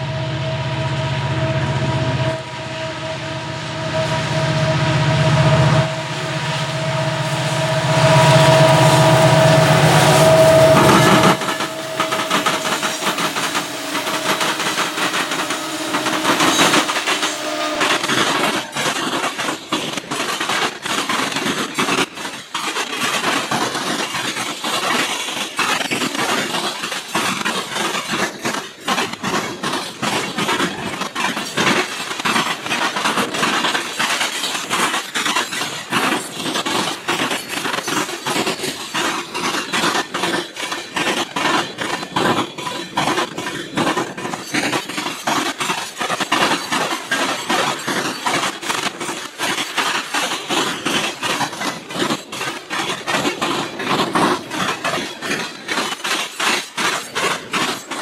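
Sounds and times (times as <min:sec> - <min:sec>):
diesel locomotives passing: 0:00.0 - 0:20.5
train wheels clicking over rail joints: 0:01.4 - 0:58.0.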